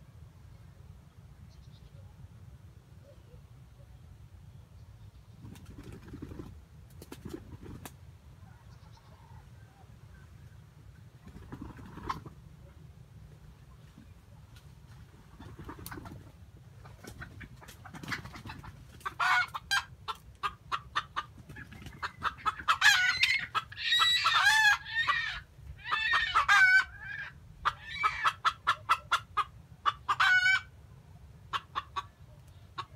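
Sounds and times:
rooster clucking: 11.2 - 12.4, 15.3 - 30.7, 31.5 - 32.9.

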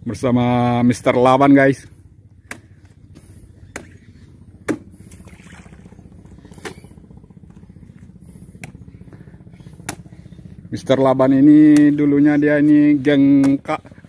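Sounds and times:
vehicle engine idling: 0.0 - 14.0
sharp knocks of fruit bunches: 2.4 - 5.2, 9.8 - 10.1.

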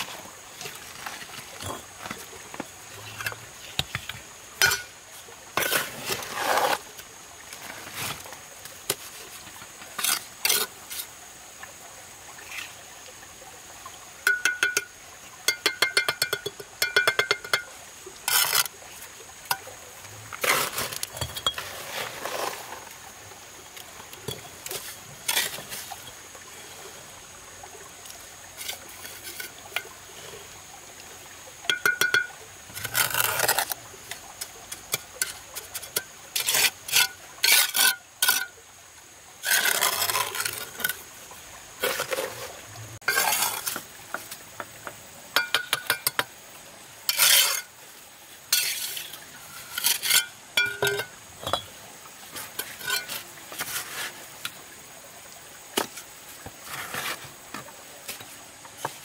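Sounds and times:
trowel scraping mortar: 5.6 - 6.9, 9.9 - 11.1, 18.3 - 18.7, 20.4 - 22.9, 24.7 - 25.9, 32.8 - 33.8, 34.7 - 38.5, 39.4 - 41.0, 41.8 - 43.9, 47.1 - 47.7, 48.5 - 51.7, 56.6 - 57.4.

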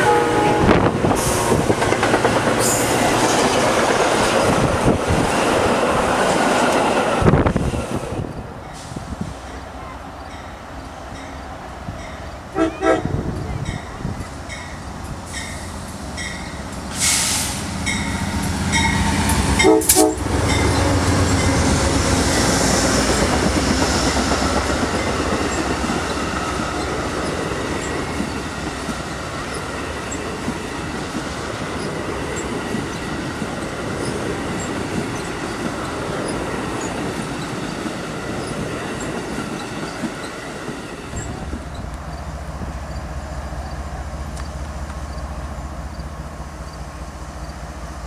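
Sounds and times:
train horn blast: 0.0 - 1.6, 12.5 - 13.6, 19.5 - 23.2
train rumble and rail clatter: 0.0 - 48.0.

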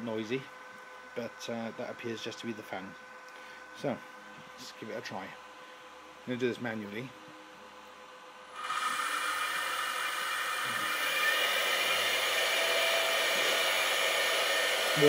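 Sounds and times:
router spindle whirring hiss: 8.5 - 15.0.

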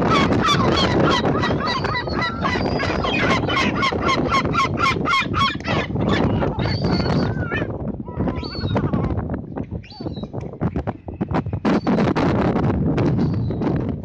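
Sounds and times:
gulls calling: 0.0 - 9.2.

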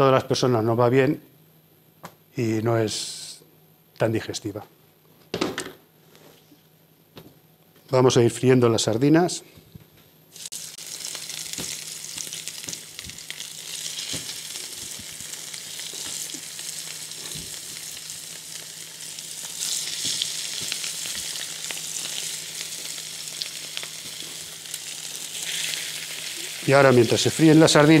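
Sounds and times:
fish frying in oil: 10.4 - 28.0.

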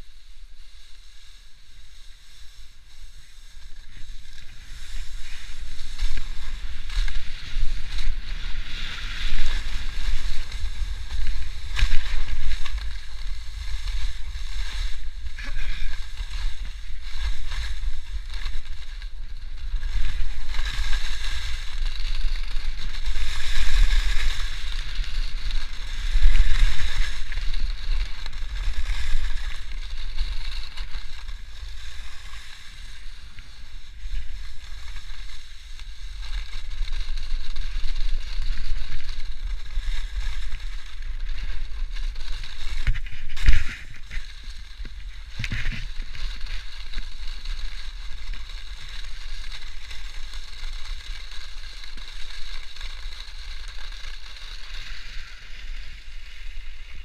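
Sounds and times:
skis hissing over snow: 0.0 - 57.0.

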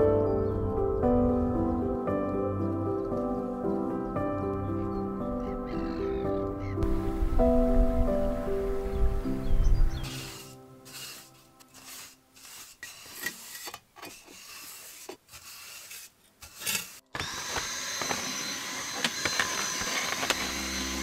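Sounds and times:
ash scraped and brushed: 10.0 - 17.1
electric motor whining: 17.1 - 21.0.

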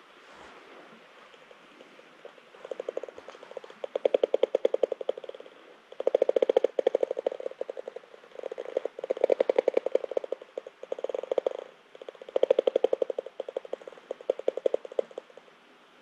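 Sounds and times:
bat detector rapid clicking: 2.2 - 15.4.

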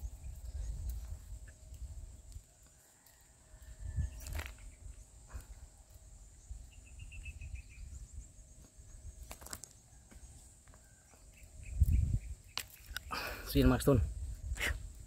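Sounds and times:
wind rumbling on microphone: 0.0 - 2.6, 3.2 - 9.5, 11.3 - 15.0
bird chirps: 6.0 - 13.2.

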